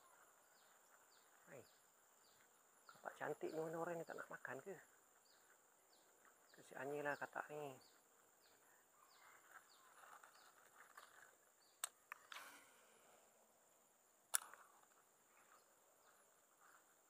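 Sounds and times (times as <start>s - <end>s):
faint chirps: 0.0s - 17.0s
sharp clicks: 14.3s - 14.9s.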